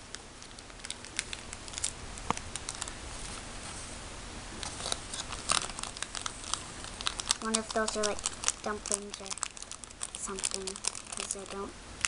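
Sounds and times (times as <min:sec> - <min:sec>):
packet crinkling: 0:00.0 - 0:03.5, 0:04.6 - 0:12.0.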